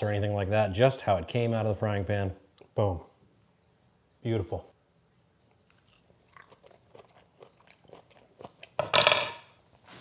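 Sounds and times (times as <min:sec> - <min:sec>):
person chewing crunchy food: 0:05.5 - 0:08.9.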